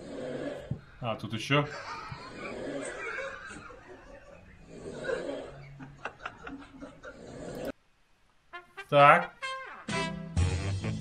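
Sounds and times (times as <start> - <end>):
people laughing and snickering: 1.6 - 7.7.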